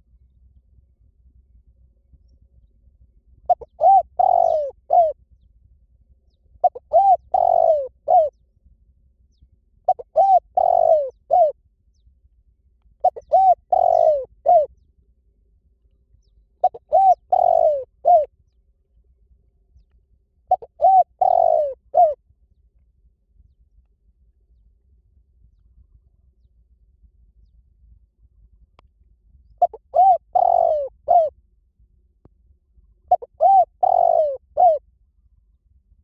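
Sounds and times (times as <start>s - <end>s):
dove cooing: 3.5s - 5.2s, 6.6s - 8.4s, 9.9s - 11.6s, 13.0s - 14.7s, 16.6s - 18.3s, 20.5s - 22.2s, 29.6s - 31.4s, 33.1s - 34.8s.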